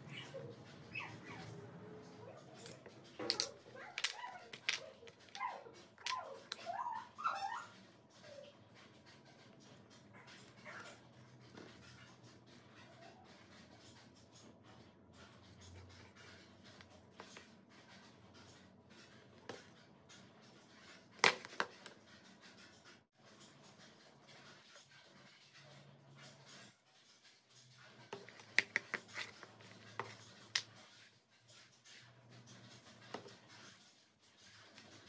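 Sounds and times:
wooden parts scraping and tapping: 28.1 - 30.7.

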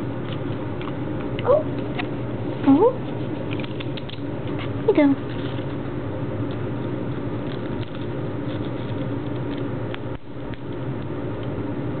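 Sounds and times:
steady background hum: 0.0 - 12.0
parrot cracking seeds: 3.2 - 5.8, 6.4 - 11.6.

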